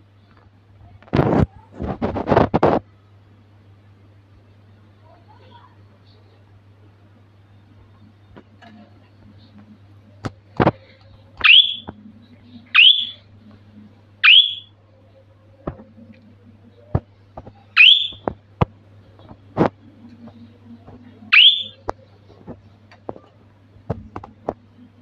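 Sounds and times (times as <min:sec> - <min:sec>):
budgerigar chirping: 0:12.8 - 0:13.2.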